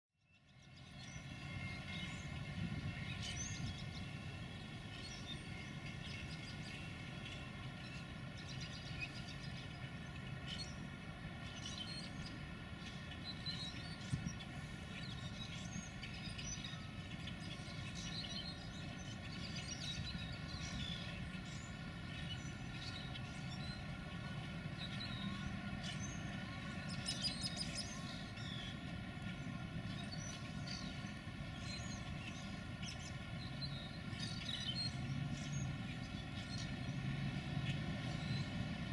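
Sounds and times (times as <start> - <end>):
small birds chirping: 0.3 - 38.9
diesel locomotive rumble: 0.4 - 38.9.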